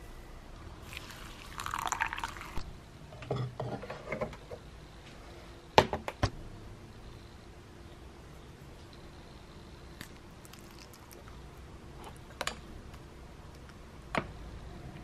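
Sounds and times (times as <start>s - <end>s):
water pouring into glass bowl: 0.8s - 2.6s.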